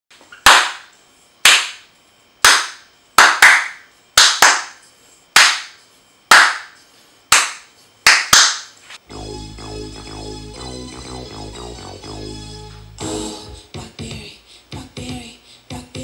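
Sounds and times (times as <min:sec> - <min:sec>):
hand claps: 0:00.4 - 0:04.8, 0:05.4 - 0:08.8.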